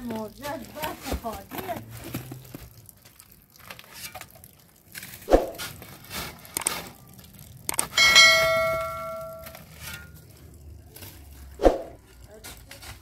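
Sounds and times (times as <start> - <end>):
bright bell ding: 8.0 - 9.6.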